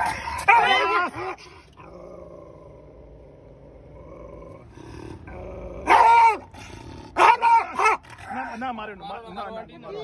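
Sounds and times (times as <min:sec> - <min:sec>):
dog growling low: 0:01.7 - 0:07.2
dog howling bark: 0:05.8 - 0:06.5, 0:07.2 - 0:08.1.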